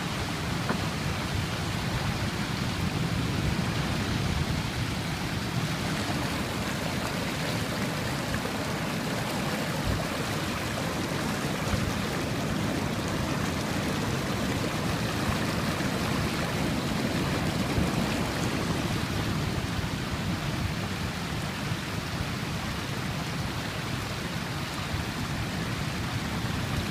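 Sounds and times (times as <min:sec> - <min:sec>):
seawater rushing over street: 0:00.0 - 0:20.2.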